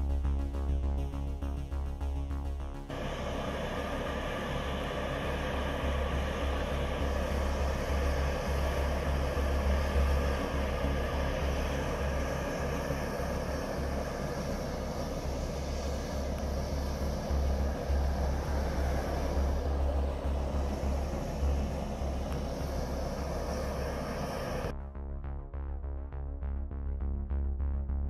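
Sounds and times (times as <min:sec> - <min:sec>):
low rumble: 0:00.0 - 0:28.0
steam venting: 0:02.9 - 0:24.7.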